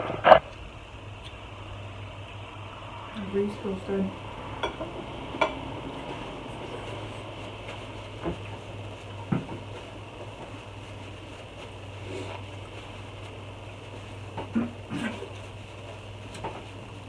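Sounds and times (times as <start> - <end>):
steady low hum: 0.0 - 17.0
dishes clicking and tapping: 4.6 - 5.6.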